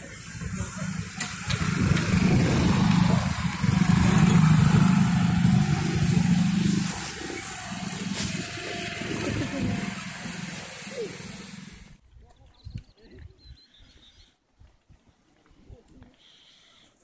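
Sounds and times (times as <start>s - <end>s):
motor scooter riding past: 0.8s - 12.0s.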